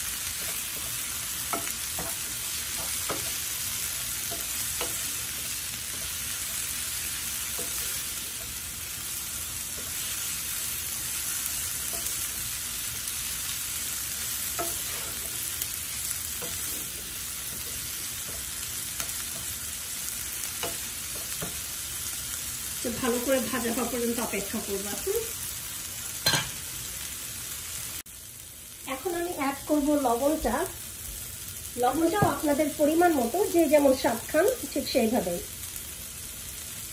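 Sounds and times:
leaves and garlic sizzling in oil: 0.0 - 36.9
spatula scraping pan: 0.2 - 8.7, 14.2 - 19.7.

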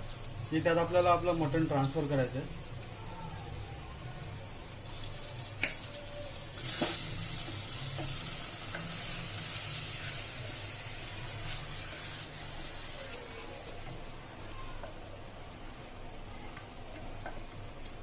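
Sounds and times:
meat sizzling in hot oil: 0.0 - 14.0.

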